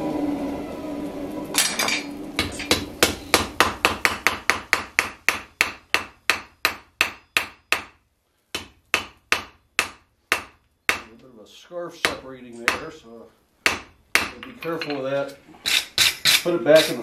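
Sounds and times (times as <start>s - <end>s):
hammer striking hot steel on anvil: 1.6s - 8.0s, 8.6s - 11.1s, 12.0s - 12.9s, 13.6s - 15.1s, 15.7s - 17.0s.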